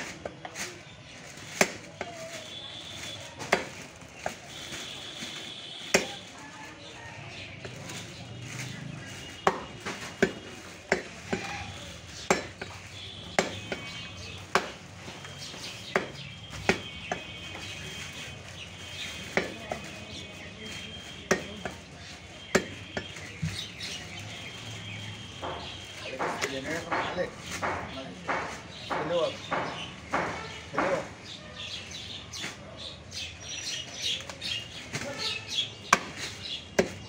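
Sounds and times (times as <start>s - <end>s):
cleaver chopping on wooden block: 5.9s - 6.2s, 9.4s - 11.5s, 12.2s - 13.9s, 14.5s - 14.8s, 15.9s - 17.2s, 22.5s - 23.1s, 25.4s - 31.0s, 36.8s - 37.0s.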